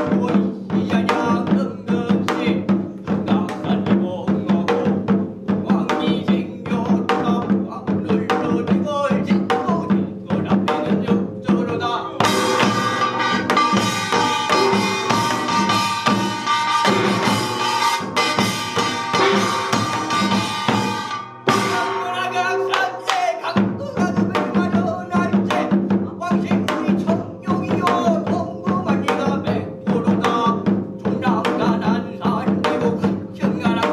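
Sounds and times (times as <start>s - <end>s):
percussion drums: 0.0s - 33.9s
ringing metal percussion: 10.8s - 33.9s
person chanting: 21.5s - 33.9s.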